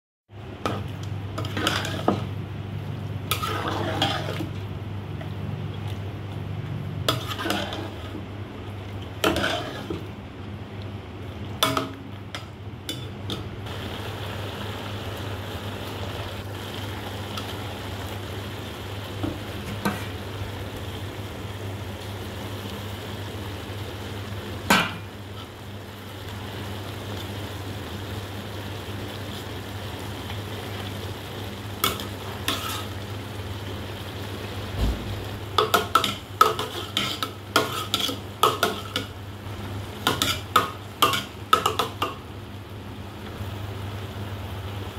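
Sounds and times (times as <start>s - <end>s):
pot bubbling: 0.3s - 26.2s, 27.0s - 42.6s
spoon scraping metal pot: 1.4s - 2.2s, 3.3s - 4.5s, 7.1s - 8.1s, 9.2s - 10.0s, 36.0s - 39.0s.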